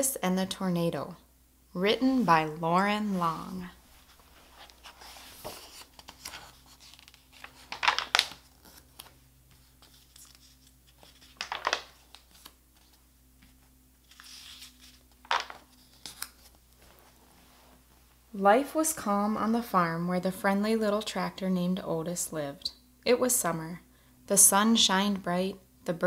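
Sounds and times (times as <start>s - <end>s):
book pages turning: 3.0s - 17.2s.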